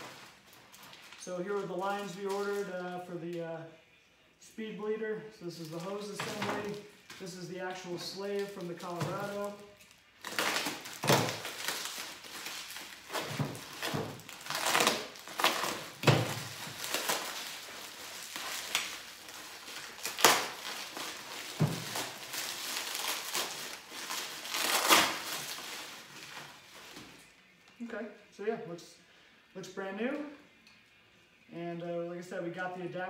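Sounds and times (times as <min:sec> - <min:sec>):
plastic packaging crinkling: 0:00.0 - 0:02.9, 0:05.5 - 0:27.3.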